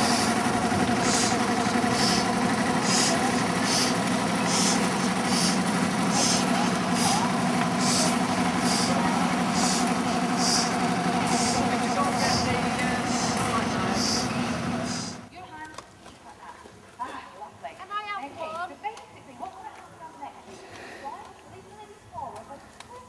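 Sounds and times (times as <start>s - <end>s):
model steam engine chuffing: 0.0s - 15.3s.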